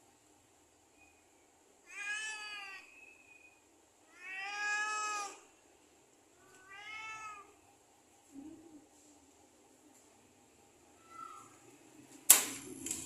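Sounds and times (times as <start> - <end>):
cat meowing: 1.8 - 3.0, 4.1 - 5.5, 6.4 - 7.6, 11.0 - 11.5.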